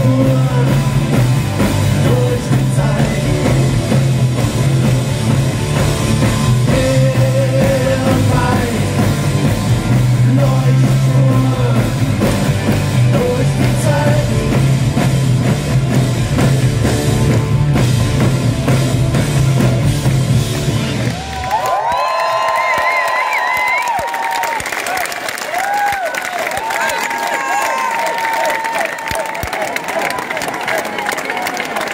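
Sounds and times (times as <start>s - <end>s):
live rock band with singing: 0.0s - 21.3s
crowd cheering: 20.1s - 31.9s.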